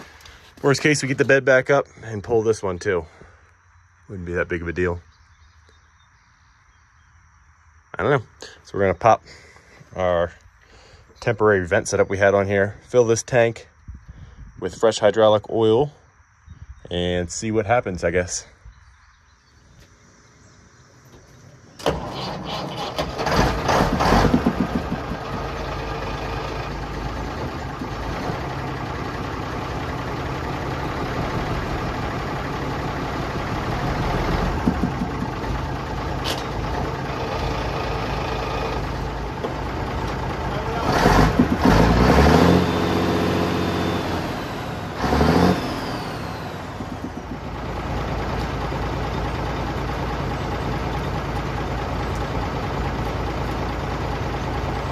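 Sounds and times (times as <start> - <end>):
diesel truck engine starting and revving: 21.7 - 54.9.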